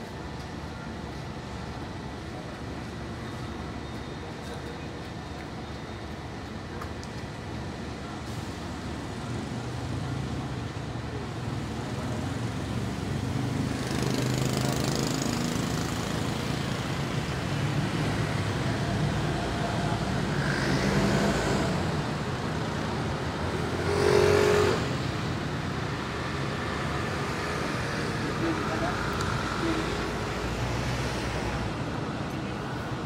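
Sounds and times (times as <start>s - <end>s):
street traffic hum: 0.0s - 33.0s
loud vehicle passing: 23.1s - 31.9s.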